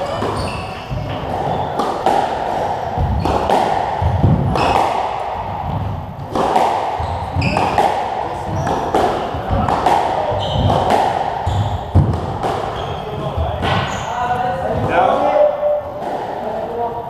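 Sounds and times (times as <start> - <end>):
shoes squeaking on wooden floor: 0.0 - 1.8, 7.0 - 7.8, 8.4 - 14.6
squash ball hitting rackets and walls: 0.0 - 16.6.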